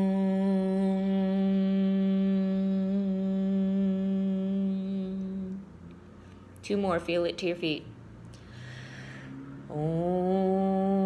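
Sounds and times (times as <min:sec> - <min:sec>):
woman chanting om: 0:00.0 - 0:05.8, 0:09.4 - 0:11.0.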